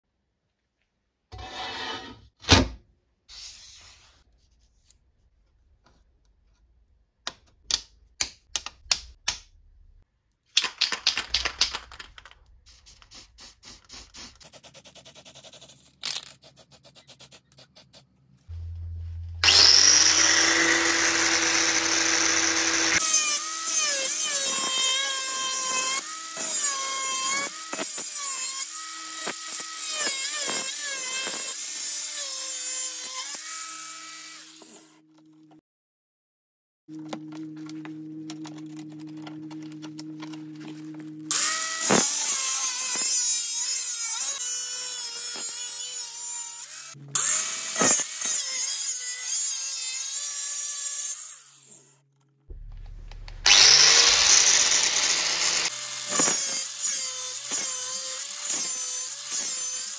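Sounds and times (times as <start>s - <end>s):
angle grinder cutting steel: 19.4s - 35.0s, 40.9s - 51.9s, 53.1s - 59.9s.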